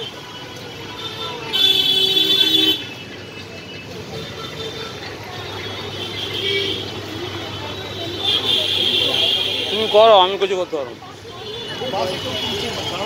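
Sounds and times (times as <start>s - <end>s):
street traffic noise: 0.0s - 13.0s
vehicle horn blaring: 0.9s - 2.9s.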